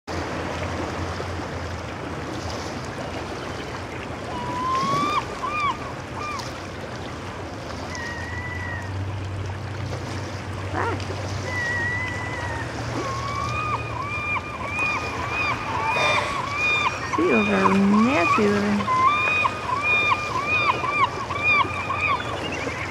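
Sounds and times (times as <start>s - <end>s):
steady water noise: 0.1s - 22.9s
gulls calling: 4.0s - 7.1s, 7.8s - 9.3s, 10.2s - 22.9s.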